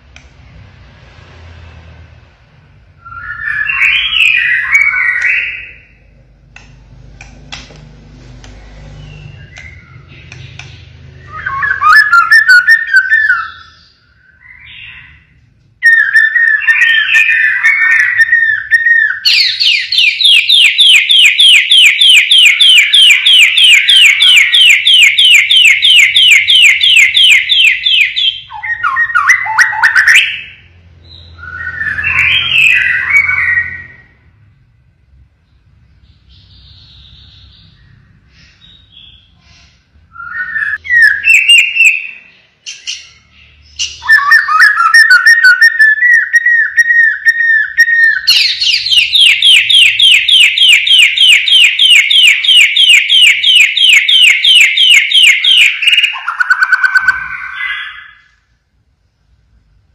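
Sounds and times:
rapid repeated rising bird notes: 2.8 - 7.6, 8.6 - 34.2, 35.5 - 58.4
bird singing whistled phrases: 3.0 - 5.9, 9.1 - 15.2, 15.8 - 34.1, 40.1 - 53.6, 54.8 - 58.3.

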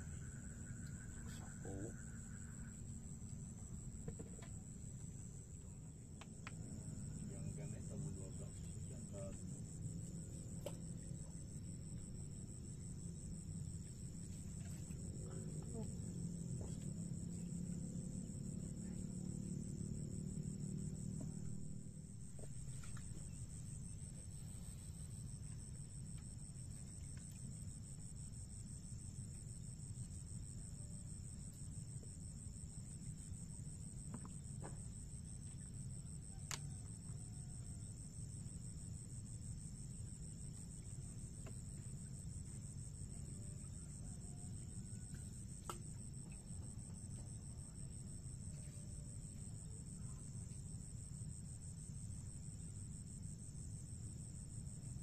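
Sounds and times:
high-pitched insect chorus: 0.0 - 55.0
low steady rumble: 0.0 - 55.0.

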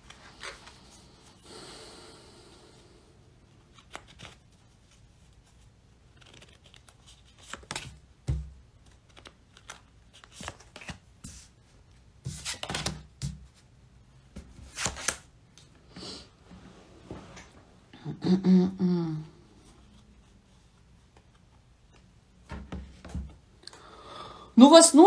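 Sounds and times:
cards shuffling and snapping: 3.6 - 11.5, 12.3 - 13.5, 14.5 - 15.6
cards slapping: 3.7 - 4.5, 6.1 - 11.5, 12.2 - 13.5, 14.4 - 15.3.

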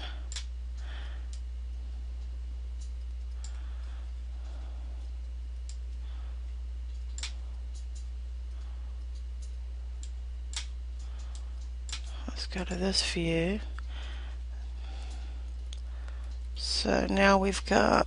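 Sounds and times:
steady low hum: 0.0 - 18.0
computer mouse clicking: 6.9 - 12.1.

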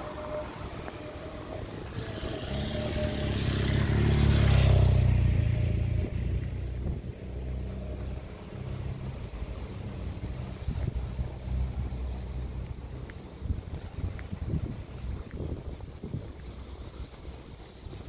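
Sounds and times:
motorcycle passing by: 0.0 - 11.8.

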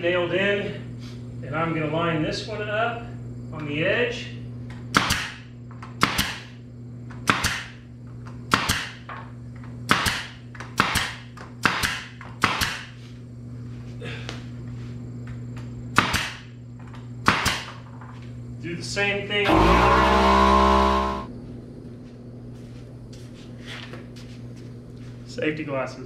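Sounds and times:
nail gun firing: 4.9 - 5.4, 6.0 - 6.5, 7.3 - 7.8, 8.5 - 9.0, 9.9 - 12.8, 16.0 - 16.4, 17.2 - 17.7
low hum: 19.5 - 22.4.

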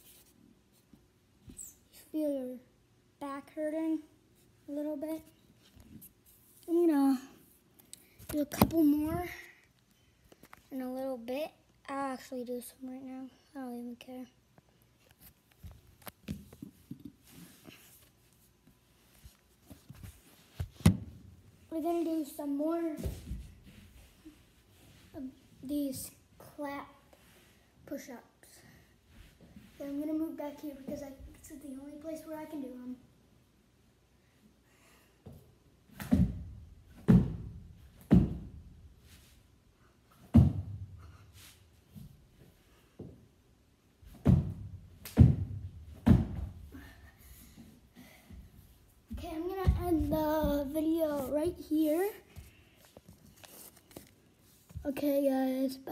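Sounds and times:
hands slapping floor: 35.9 - 36.4, 44.1 - 46.5.

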